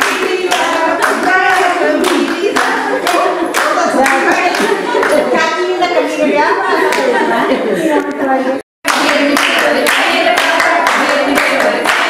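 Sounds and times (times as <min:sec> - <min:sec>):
people clapping in rhythm: 0:00.0 - 0:05.8, 0:06.7 - 0:07.2, 0:08.8 - 0:12.0.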